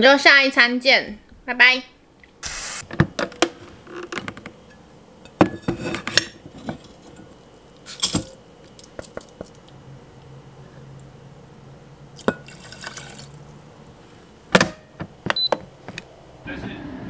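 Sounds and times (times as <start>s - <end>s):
metal pot and strainer clinking: 12.2s - 13.3s.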